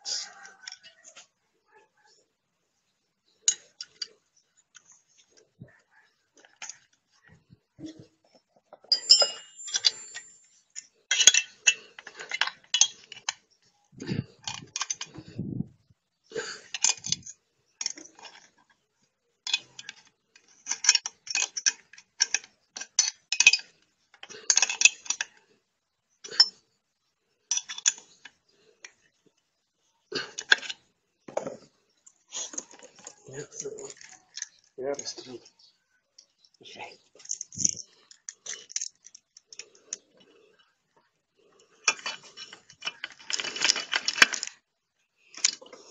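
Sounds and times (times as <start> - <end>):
metal tools clinking: 8.8 - 15.4, 16.7 - 18.7, 19.5 - 25.4, 27.5 - 29.0, 32.4 - 35.4, 37.2 - 40.0, 41.5 - 44.6.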